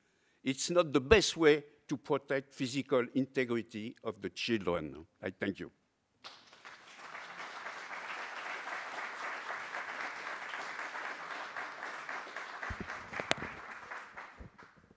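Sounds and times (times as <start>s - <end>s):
audience applauding: 6.2s - 14.9s.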